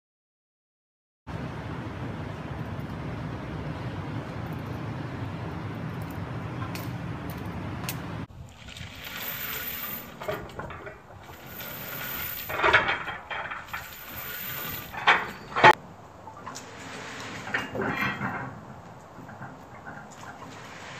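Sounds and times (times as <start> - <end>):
low outdoor rumble: 1.3 - 20.9
sled scraping over asphalt: 1.7 - 20.9
metal weight plates clanking: 9.2 - 20.9.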